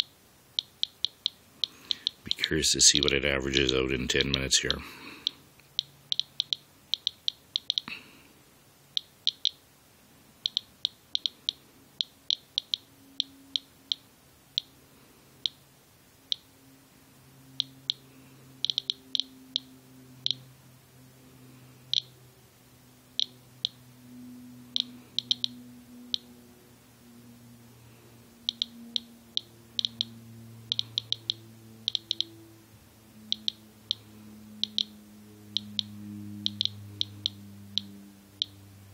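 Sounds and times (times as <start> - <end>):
geiger counter clicking: 0.0 - 7.9, 8.9 - 9.6, 10.4 - 14.8, 15.4 - 15.6, 16.3 - 16.5, 17.6 - 18.0, 18.6 - 20.4, 21.9 - 22.2, 23.2 - 23.8, 24.7 - 26.3, 28.4 - 32.4, 33.3 - 38.6.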